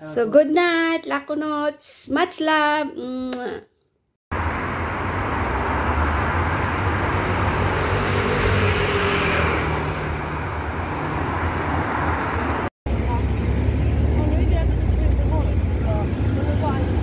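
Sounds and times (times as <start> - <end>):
car driving past: 4.3 - 16.4
road traffic rumble: 4.3 - 17.0.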